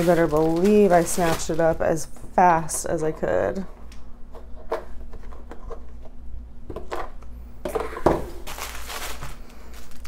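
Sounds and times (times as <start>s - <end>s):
bag rustling: 0.0s - 2.0s, 8.4s - 10.0s.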